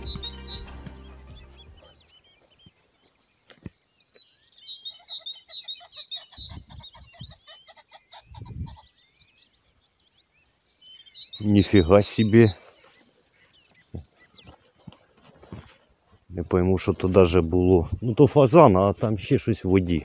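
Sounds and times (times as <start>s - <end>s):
pheasant cackling: 4.9s - 8.9s.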